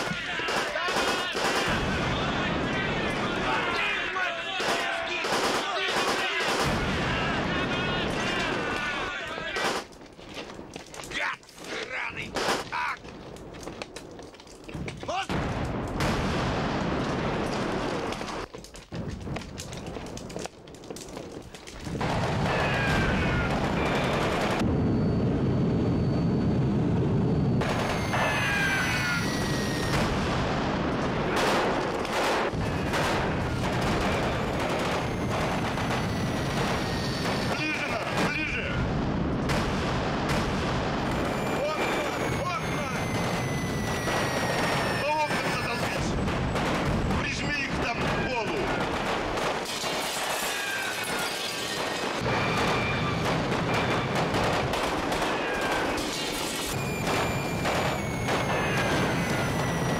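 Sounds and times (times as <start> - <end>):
gunfire: 0.0 - 9.9, 12.2 - 12.9, 15.3 - 19.0, 21.8 - 24.7, 27.6 - 59.9
heavy blasts: 0.0 - 9.9, 14.7 - 20.5, 21.8 - 59.9
rifle and machine-gun fire: 0.0 - 9.9, 12.2 - 12.7, 15.3 - 18.5, 21.8 - 24.7, 27.6 - 59.9
explosion booms: 1.6 - 3.6, 6.6 - 8.8, 14.8 - 18.2, 21.9 - 49.6, 51.7 - 59.9.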